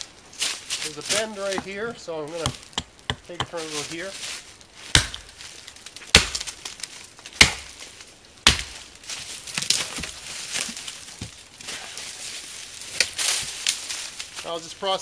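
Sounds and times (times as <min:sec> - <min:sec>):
branches snapping and rustling: 0:00.0 - 0:14.6
axe chopping tree: 0:01.5 - 0:03.8, 0:04.8 - 0:05.4, 0:06.0 - 0:06.7, 0:07.3 - 0:07.8, 0:08.4 - 0:08.9.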